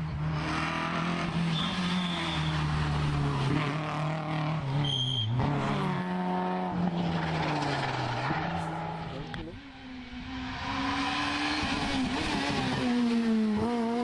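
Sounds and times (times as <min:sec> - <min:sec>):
rally car engine passing: 0:00.0 - 0:14.0
tyre squeal: 0:01.4 - 0:02.8, 0:04.8 - 0:05.4.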